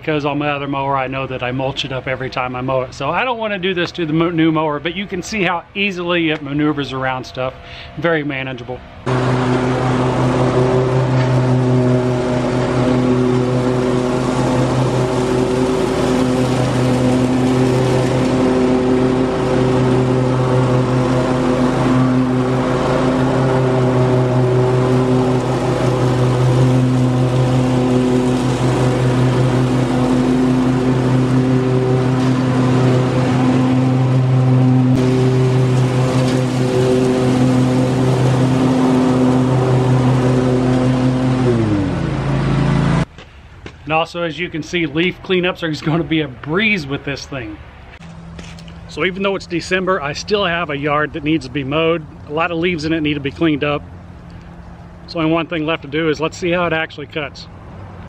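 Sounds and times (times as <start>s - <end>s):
lawn mower engine running: 0.0s - 58.0s.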